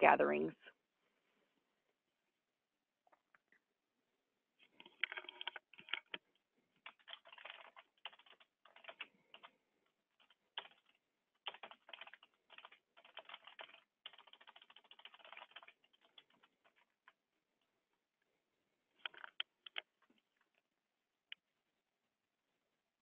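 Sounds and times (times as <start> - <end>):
typing on computer keyboard: 4.7 - 6.2, 6.8 - 9.6, 10.2 - 17.2, 19.0 - 19.9.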